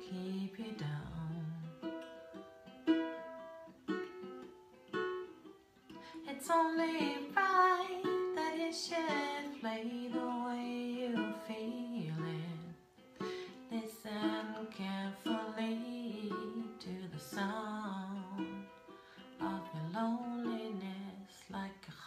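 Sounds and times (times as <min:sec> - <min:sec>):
woman singing: 0:00.0 - 0:01.9, 0:06.0 - 0:18.8, 0:19.4 - 0:22.0
ukulele strummed chords: 0:00.0 - 0:22.0.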